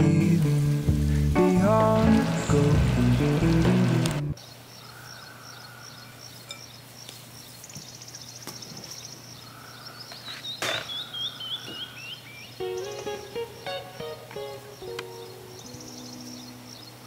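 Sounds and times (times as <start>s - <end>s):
birds chirping: 0.2s - 17.0s.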